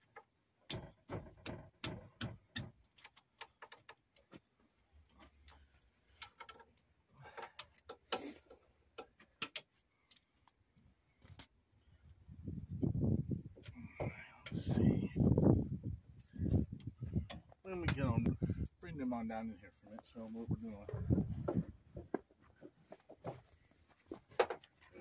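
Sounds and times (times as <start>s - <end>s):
hand tools clicking and tapping: 0.1s - 4.5s, 5.4s - 10.3s.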